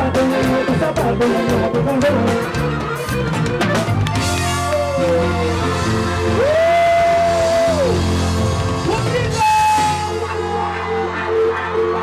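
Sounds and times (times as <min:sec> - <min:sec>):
accordion: 0:00.0 - 0:12.0
drum kit: 0:00.0 - 0:12.0
electric bass: 0:00.0 - 0:12.0.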